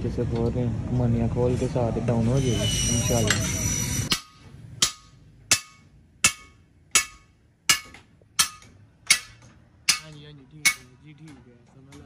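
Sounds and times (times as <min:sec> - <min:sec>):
hammer striking metal on anvil: 0:02.5 - 0:11.0.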